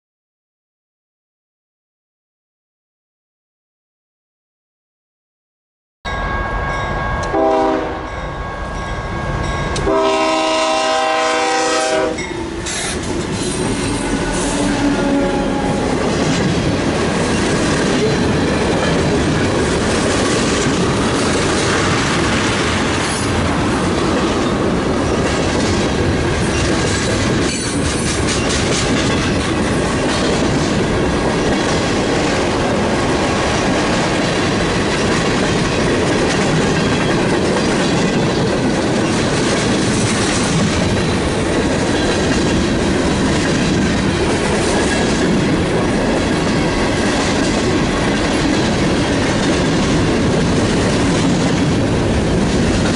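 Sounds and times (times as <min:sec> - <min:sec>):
train wheels on rails: 0:06.7 - 0:52.9
locomotive air horn blasts: 0:07.3 - 0:08.2, 0:09.8 - 0:12.6, 0:13.8 - 0:15.9.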